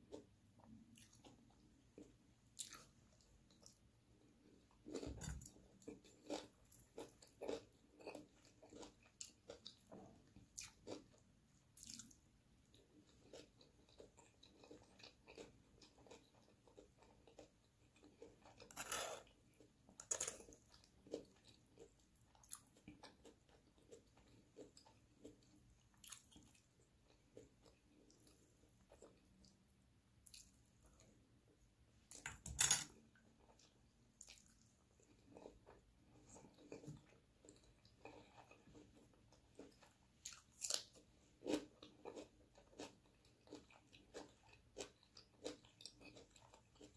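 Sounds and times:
food crunches: 13.2s - 21.6s, 39.6s - 46.9s.

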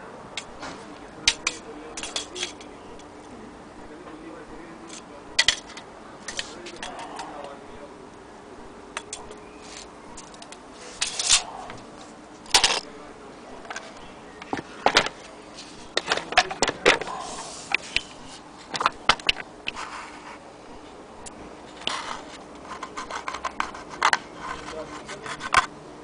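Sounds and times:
wooden toy handling clicks and knocks: 0.4s - 3.1s, 4.9s - 7.6s, 9.0s - 13.0s, 13.6s - 19.9s, 21.7s - 25.7s.

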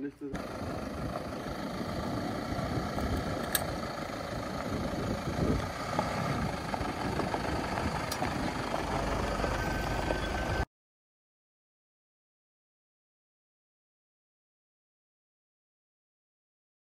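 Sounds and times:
pickup engine running: 0.2s - 10.7s.

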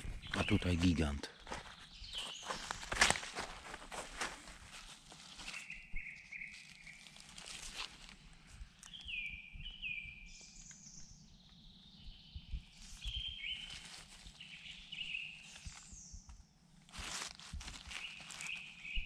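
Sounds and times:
birds singing: 0.0s - 3.7s, 5.2s - 16.4s, 17.7s - 19.0s.

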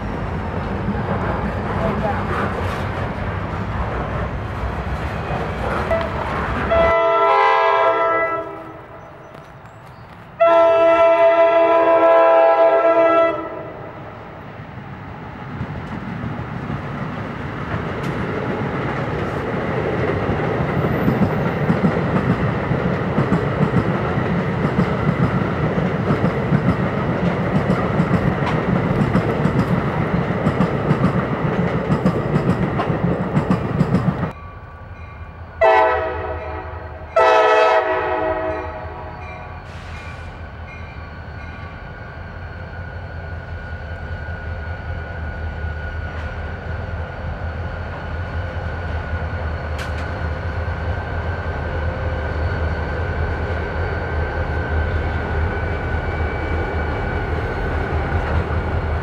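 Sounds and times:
train wheels rumbling on rails: 0.0s - 12.6s, 14.2s - 59.0s
low locomotive engine rumble: 0.0s - 12.7s, 13.4s - 59.0s
train horn blasts: 5.9s - 9.2s, 10.4s - 14.0s, 35.6s - 39.6s.

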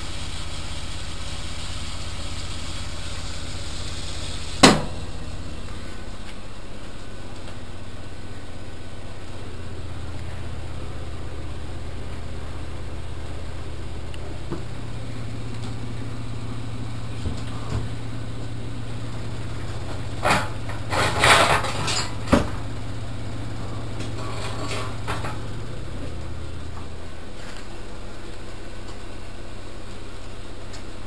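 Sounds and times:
washing machine humming: 0.0s - 31.0s
loud knocks and rattles: 4.6s - 5.1s, 19.8s - 22.7s, 24.0s - 25.6s.

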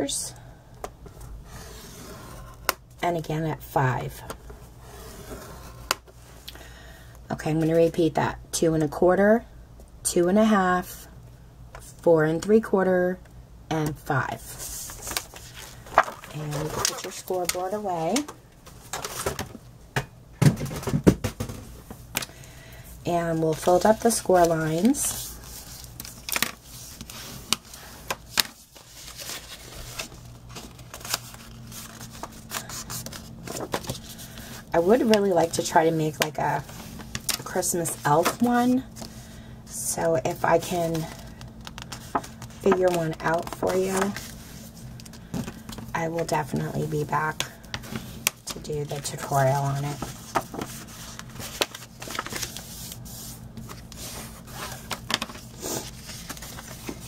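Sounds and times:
paper rubbing and scraping: 14.4s - 17.4s, 28.5s - 35.2s, 49.0s - 57.0s
cardstock crackling as folded: 14.4s - 19.6s, 23.3s - 39.3s, 40.4s - 57.0s
sharp paper creasing clicks: 41.1s - 44.3s.

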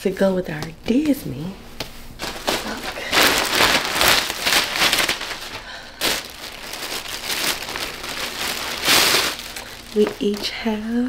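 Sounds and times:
plastic bag crinkling: 2.2s - 11.0s.

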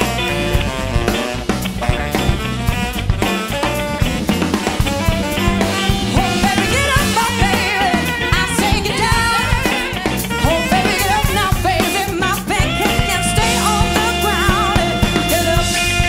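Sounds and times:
bass guitar: 0.0s - 16.0s
drum kit: 0.0s - 16.0s
saxophone: 0.0s - 16.0s
women singing: 6.0s - 16.0s.

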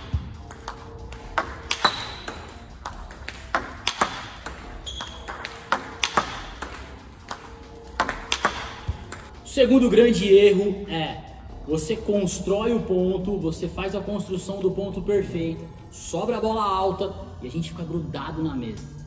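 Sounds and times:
table tennis ball clicking: 0.1s - 9.3s.

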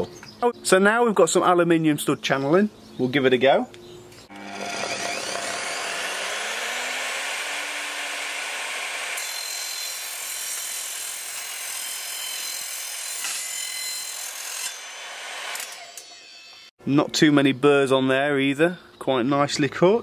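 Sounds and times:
mitre saw cutting metal: 4.3s - 16.7s.

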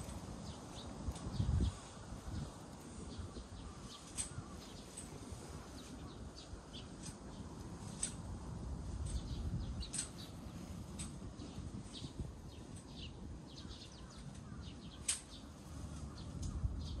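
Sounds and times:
small birds chirping: 0.0s - 17.0s
sharp click: 15.0s - 15.4s.

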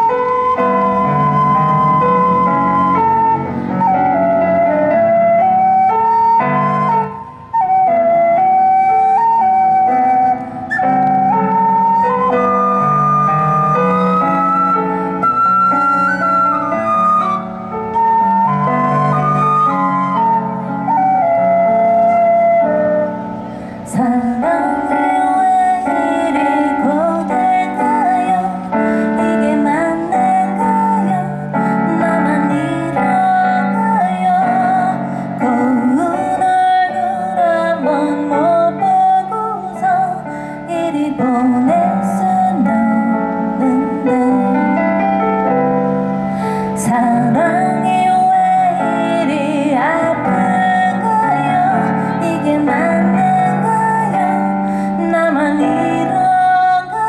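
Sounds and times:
electric piano: 0.0s - 57.0s
woman singing: 23.8s - 45.0s, 46.6s - 57.0s.

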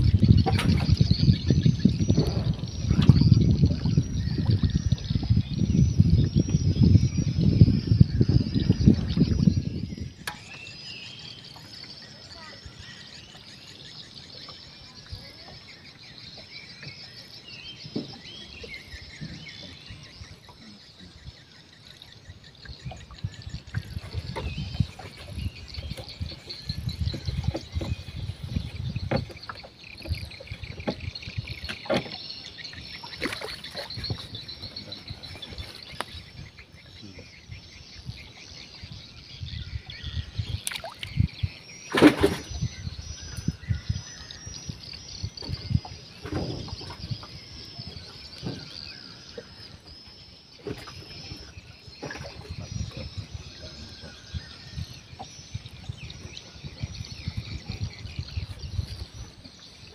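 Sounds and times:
low rumbling: 0.0s - 10.5s
birds chirping: 0.0s - 59.9s
insects chirping: 0.0s - 59.9s.

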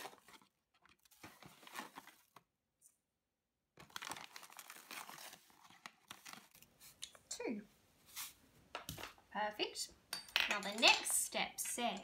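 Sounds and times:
paper bag crinkling: 0.0s - 2.4s, 3.8s - 6.7s.

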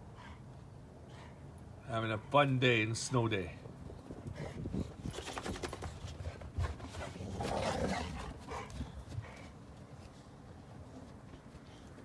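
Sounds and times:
dog growling: 7.0s - 8.4s.

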